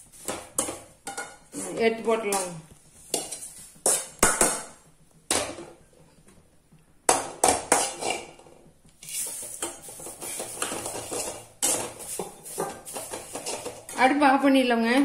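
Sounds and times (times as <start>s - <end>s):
spatula scraping dry leaves in pan: 0.0s - 4.5s, 7.7s - 14.2s
metal spoon clinking on dishes: 0.3s - 1.5s.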